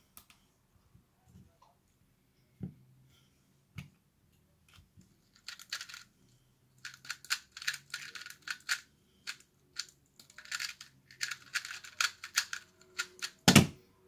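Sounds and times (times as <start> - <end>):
puzzle cube plastic clicks: 5.2 - 6.1, 6.8 - 13.4.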